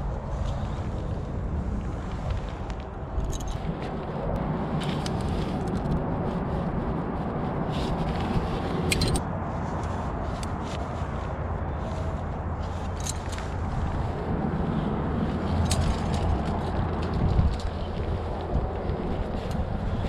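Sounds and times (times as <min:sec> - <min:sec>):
wind rumbling on microphone: 0:00.0 - 0:20.0
nylon jacket rustling: 0:07.6 - 0:20.0
metallic clinks of carabiners: 0:12.8 - 0:13.5.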